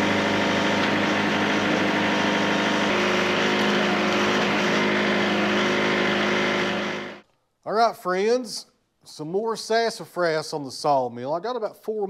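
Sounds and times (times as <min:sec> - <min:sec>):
engine running steadily: 0:00.0 - 0:07.2.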